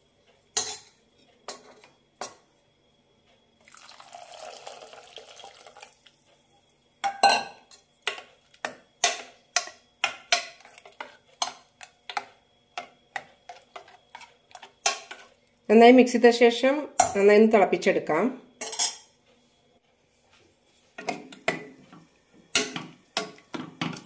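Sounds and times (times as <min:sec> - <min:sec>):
liquid pouring into pot: 0:03.6 - 0:06.2.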